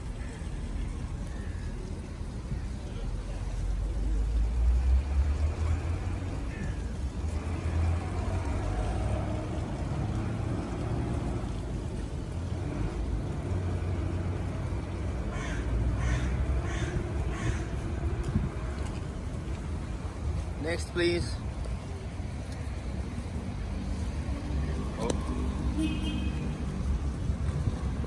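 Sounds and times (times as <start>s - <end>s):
crow cawing: 15.3s - 17.8s.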